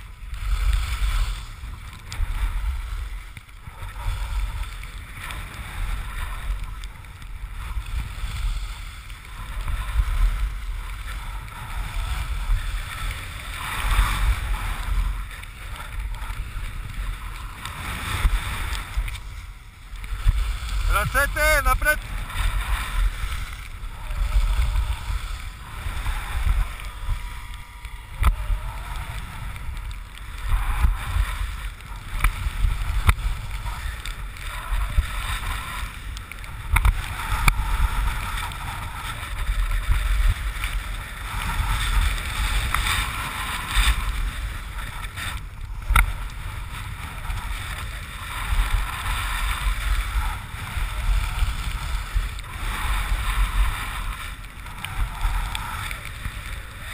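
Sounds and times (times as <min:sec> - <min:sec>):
skis sliding on snow: 0:00.0 - 0:56.9
wind on microphone: 0:00.0 - 0:56.9.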